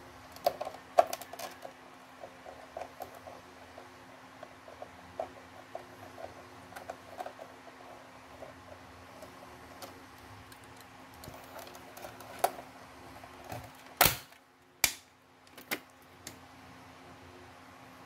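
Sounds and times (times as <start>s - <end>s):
plastic clips snapping: 13.5s - 16.4s.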